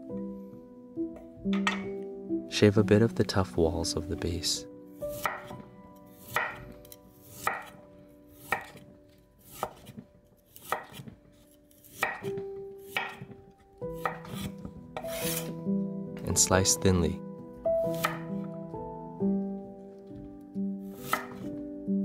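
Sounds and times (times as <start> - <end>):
blade knocking on wooden board: 1.4 - 1.9, 12.0 - 12.4, 13.0 - 13.4
cleaver shaving bamboo shoot: 8.4 - 8.8, 9.4 - 13.3, 14.0 - 15.6, 21.0 - 21.5.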